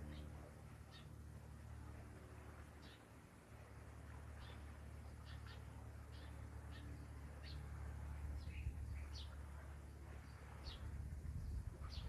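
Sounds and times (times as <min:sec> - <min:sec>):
low steady rumble: 0:00.0 - 0:12.0
small birds chirping: 0:04.4 - 0:07.7, 0:10.2 - 0:12.0.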